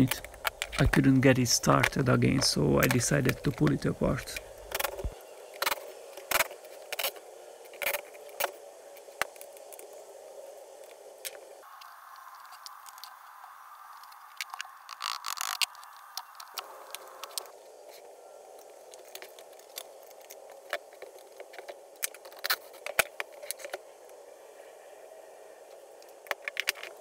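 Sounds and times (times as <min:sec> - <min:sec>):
steady low hiss: 0:00.0 - 0:27.0
plastic housing clicks and scrapes: 0:00.1 - 0:01.0, 0:01.8 - 0:09.9, 0:14.0 - 0:18.0, 0:18.6 - 0:23.8, 0:26.0 - 0:27.0.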